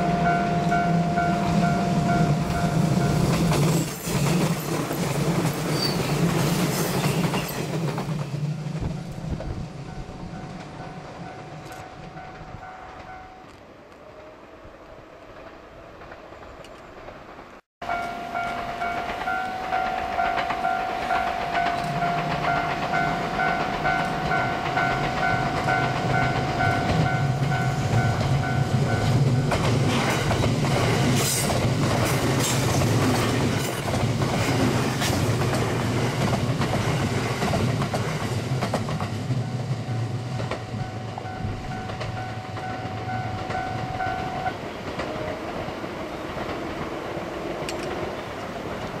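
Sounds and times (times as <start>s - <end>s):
crossing bell dinging: 0.0s - 4.3s, 8.9s - 13.5s, 17.8s - 30.0s, 38.9s - 44.6s
electric train passing: 0.0s - 49.0s.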